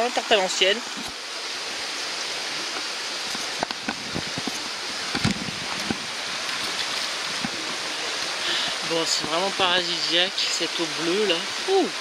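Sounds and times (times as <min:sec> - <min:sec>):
mountain stream running: 0:00.0 - 0:12.0.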